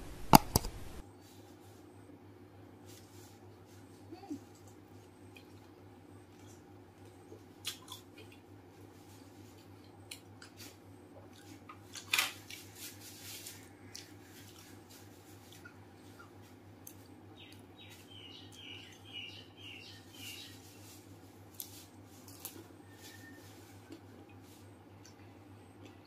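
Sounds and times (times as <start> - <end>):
low hum: 0.0 - 7.4.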